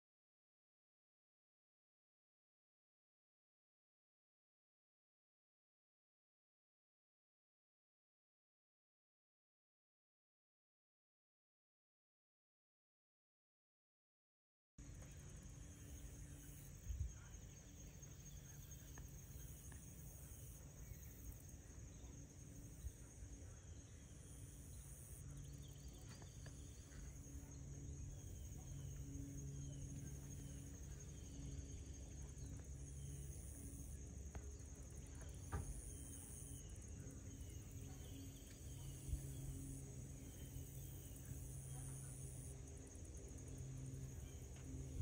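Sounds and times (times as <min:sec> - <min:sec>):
insects trilling: 0:14.8 - 0:45.0
low hum: 0:14.8 - 0:45.0.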